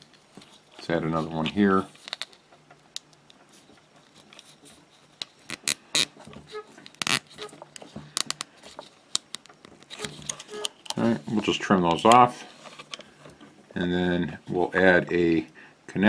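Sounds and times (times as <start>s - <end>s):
plastic tubing rustling: 3.3s - 15.1s.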